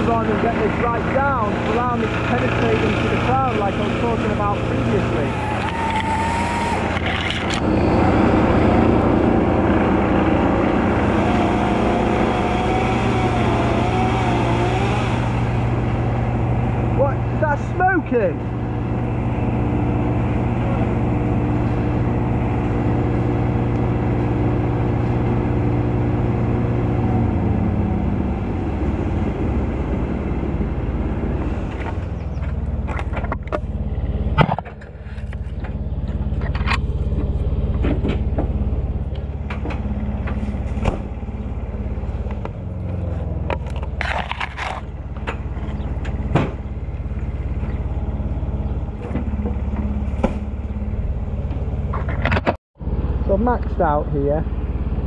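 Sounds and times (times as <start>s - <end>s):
engine running: 0.0s - 55.0s
sharp clicks and knocks: 31.8s - 33.7s.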